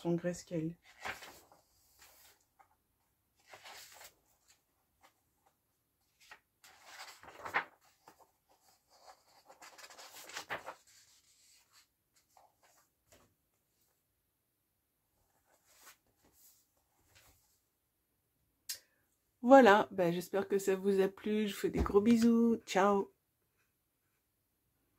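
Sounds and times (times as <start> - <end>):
paper pages rustling: 0.8 - 2.8, 3.4 - 13.9, 15.2 - 17.6.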